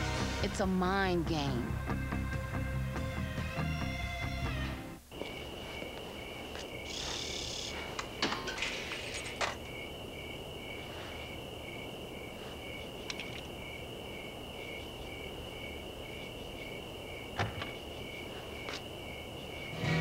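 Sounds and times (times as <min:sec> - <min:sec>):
crickets chirping: 0:03.8 - 0:20.0.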